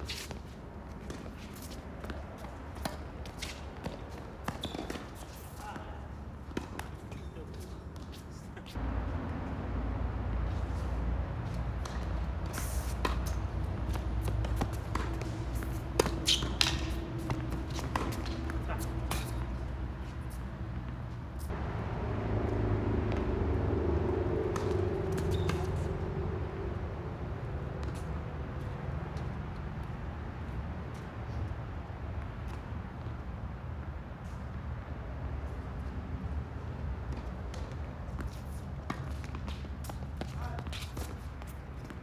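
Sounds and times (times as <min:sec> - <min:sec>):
distant traffic rumble: 0:00.5 - 0:42.0
tennis ball bounces: 0:01.0 - 0:05.4, 0:06.4 - 0:08.8, 0:11.4 - 0:21.6, 0:24.4 - 0:25.9
tennis racket strikes: 0:11.8 - 0:19.4.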